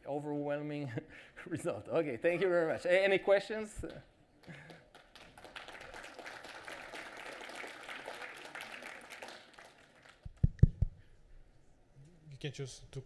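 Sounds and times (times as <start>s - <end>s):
audience applauding: 4.4s - 10.4s.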